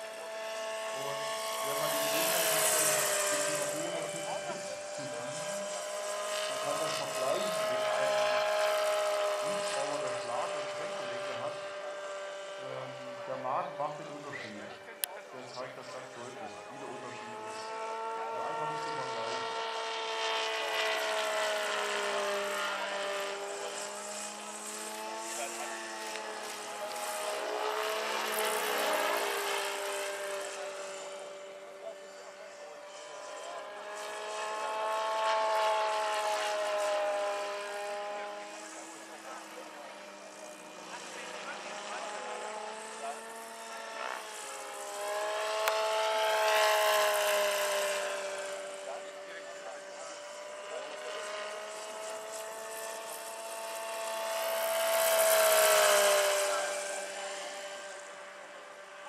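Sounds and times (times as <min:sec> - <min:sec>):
model helicopter motor whining: 0:00.0 - 0:59.0.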